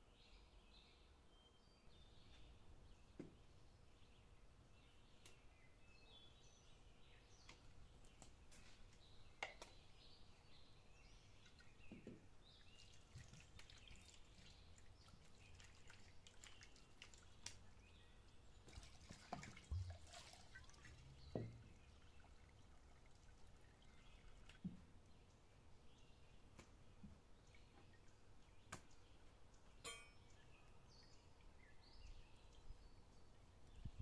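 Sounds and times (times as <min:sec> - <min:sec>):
water dripping and splashing: 0:11.4 - 0:25.0.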